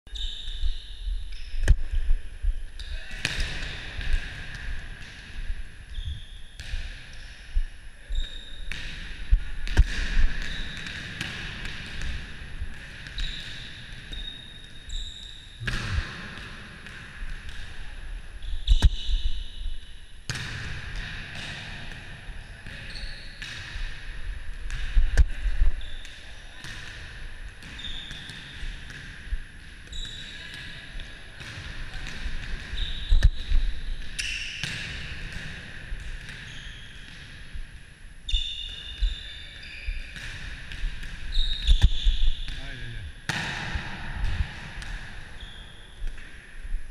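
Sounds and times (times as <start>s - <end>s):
shoes squeaking on floor: 0.1s - 1.9s, 13.2s - 15.4s, 18.4s - 19.5s, 27.7s - 28.3s, 32.7s - 34.6s, 36.4s - 37.1s, 38.3s - 40.2s, 41.3s - 42.6s, 45.4s - 46.0s
ball striking floor: 8.7s - 12.3s, 43.3s - 46.3s.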